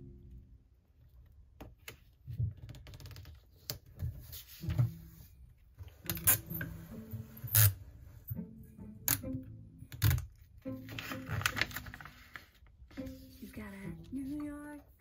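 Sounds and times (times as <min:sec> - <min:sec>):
tape pulled and torn: 0:06.0 - 0:06.7, 0:07.4 - 0:07.8, 0:10.9 - 0:12.5
paper rustling and tapping: 0:09.9 - 0:13.4.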